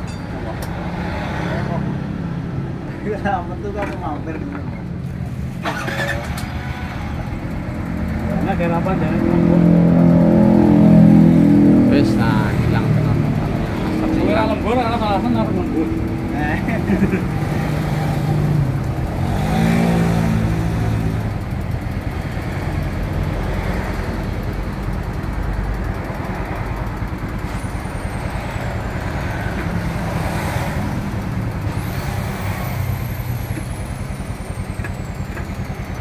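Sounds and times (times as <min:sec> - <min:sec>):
scooter engine idling: 0:05.6 - 0:10.1, 0:20.4 - 0:30.2, 0:32.7 - 0:36.0.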